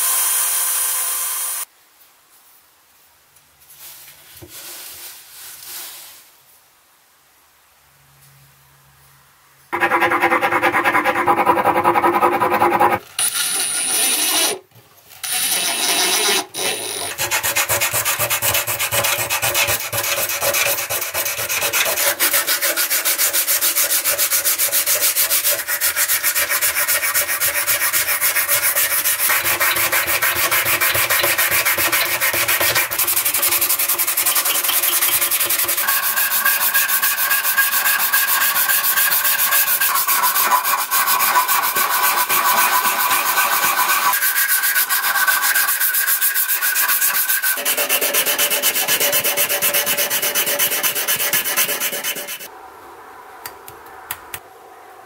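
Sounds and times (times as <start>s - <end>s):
sandpaper scraping wood: 9.8s - 14.6s, 15.2s - 52.5s.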